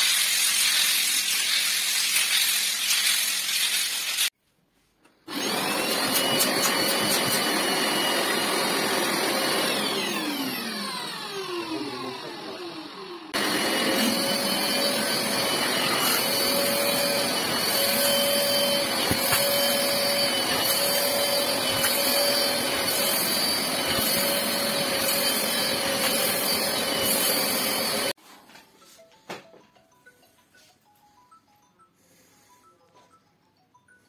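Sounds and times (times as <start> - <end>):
upholstery cleaner suction whine: 5.3 - 28.2.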